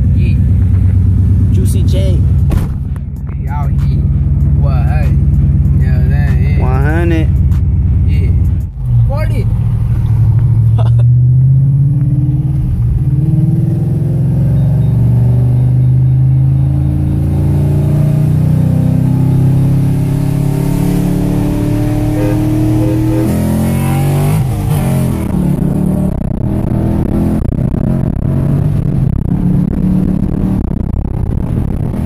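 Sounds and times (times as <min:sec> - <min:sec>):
car engine accelerating hard: 0:00.0 - 0:32.0.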